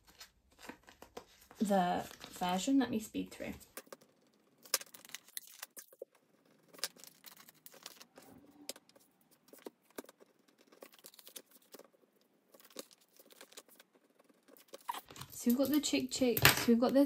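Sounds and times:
paper cards rustling into plastic pockets: 0.0s - 16.8s.

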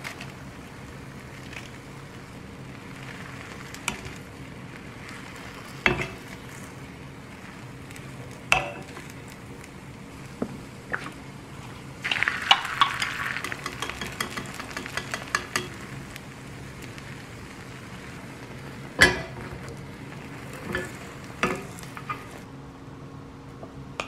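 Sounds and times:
egg sizzling in hot pan: 0.0s - 22.5s
wooden spatula tapping pan: 12.5s - 15.8s.

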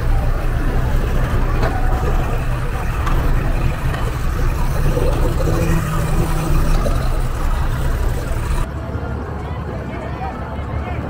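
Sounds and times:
outboard motor idling: 0.0s - 8.7s.

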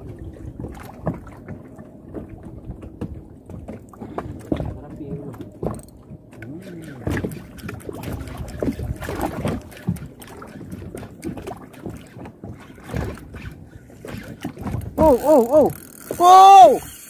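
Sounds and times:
boat noise: 0.0s - 17.0s
fishing rod knocks and rustles: 2.9s - 15.2s
wind on microphone: 7.0s - 15.7s.

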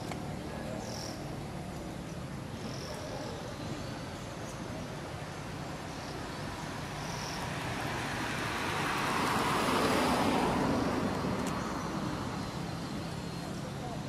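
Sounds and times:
road vehicle passing by: 0.0s - 14.0s.

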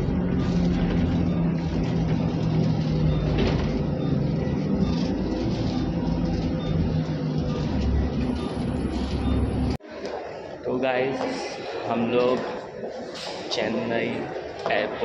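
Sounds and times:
bus engine humming: 0.0s - 9.8s
road rumble: 0.0s - 9.8s.

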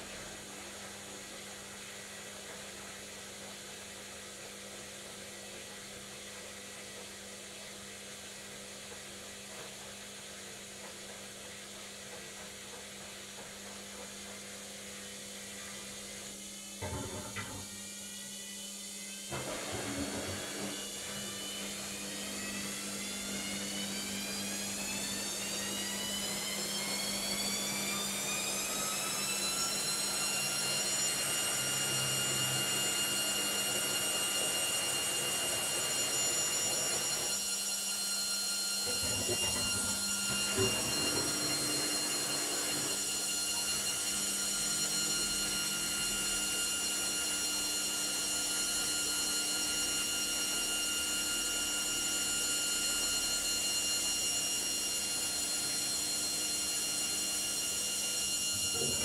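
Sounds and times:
washing machine motor whine: 0.0s - 59.0s
washing machine drum knocks: 16.8s - 17.7s.

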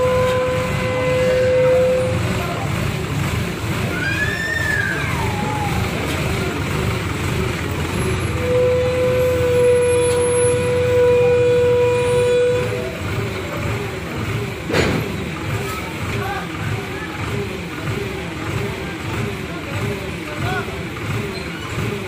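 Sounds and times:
crane diesel engine running: 0.0s - 22.0s.

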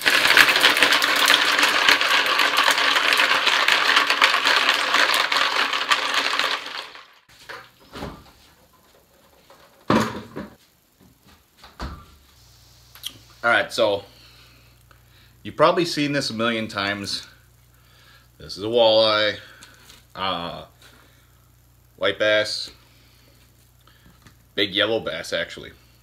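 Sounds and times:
footsteps: 10.4s - 12.4s.

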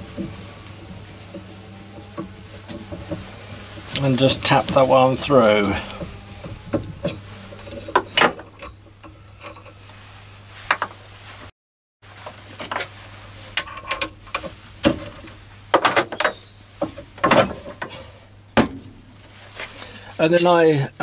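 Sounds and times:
steady low hum: 0.0s - 11.5s.

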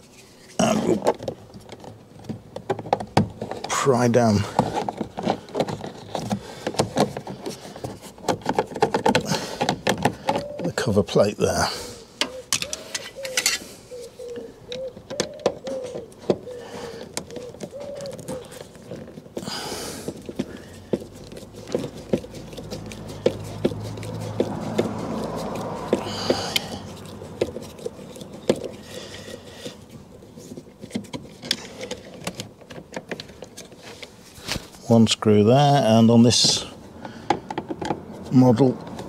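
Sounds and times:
screwdriver working screws: 21.1s - 29.3s.

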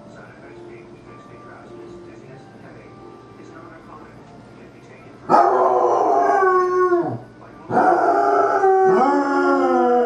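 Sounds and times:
dog howling: 5.3s - 10.0s.

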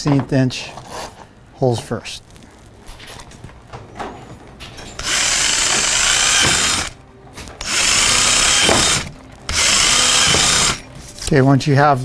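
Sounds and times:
power drill drilling plastic: 5.0s - 7.0s, 7.6s - 10.8s.

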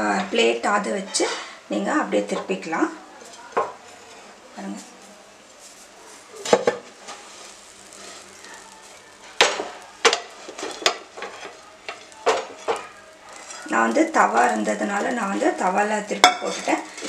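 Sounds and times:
faint sizzle: 0.0s - 17.0s
frying pan knocking on griddle: 6.4s - 7.0s, 8.6s - 16.7s.

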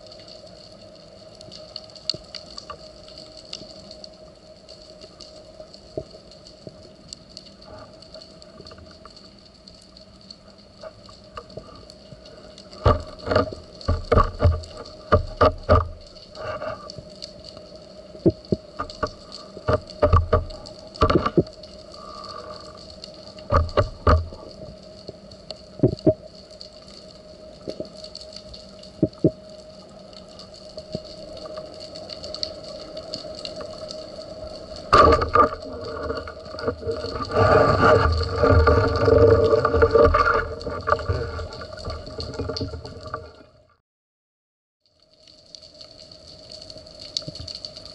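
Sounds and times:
underwater rushing: 0.0s - 43.7s
faint steady underwater hum: 0.0s - 43.8s, 44.8s - 47.9s
sharp clicks and knocks: 12.8s - 16.7s, 18.2s - 21.6s, 23.5s - 24.4s.

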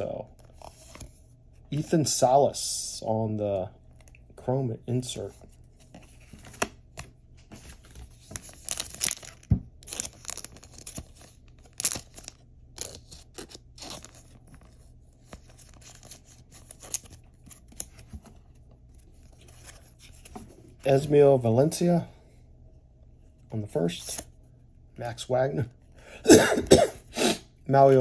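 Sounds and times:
plastic sleeve crinkling: 7.6s - 17.9s.

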